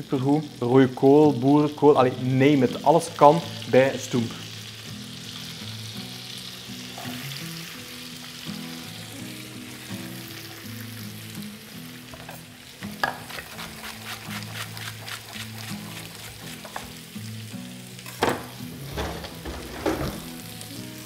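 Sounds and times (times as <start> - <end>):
vegetables sizzling in butter: 0.0 - 21.0.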